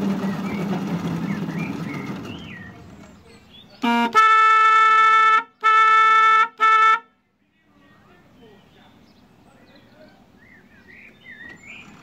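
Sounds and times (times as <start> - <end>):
small locomotive running: 0.0 - 3.7
locomotive horn toots: 3.8 - 7.2.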